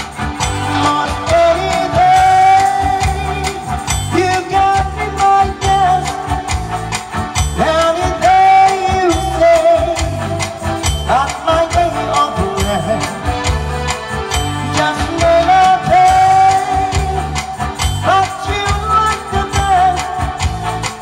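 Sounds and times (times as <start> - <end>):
pulsing bass beat: 0.0 - 21.0.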